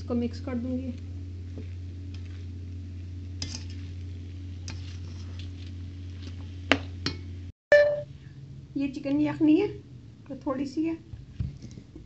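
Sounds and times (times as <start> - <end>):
steady low hum: 0.0 - 12.0
spatula stirring food in a wok: 1.0 - 7.2.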